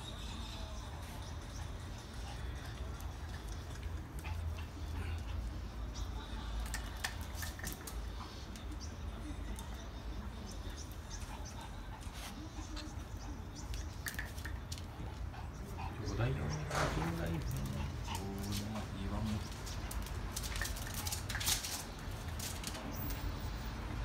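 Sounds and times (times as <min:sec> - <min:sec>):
dog claws clicking on floor: 0:19.4 - 0:23.2.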